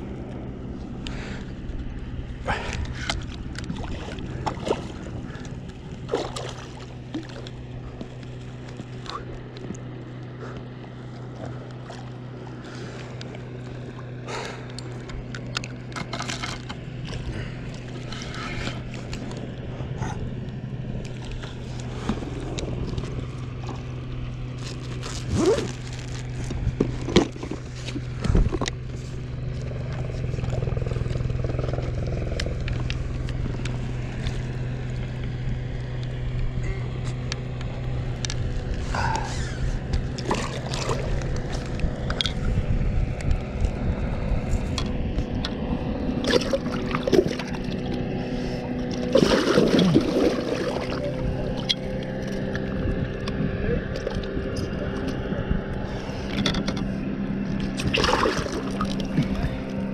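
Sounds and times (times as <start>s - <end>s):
low motor hum: 0.0s - 59.9s.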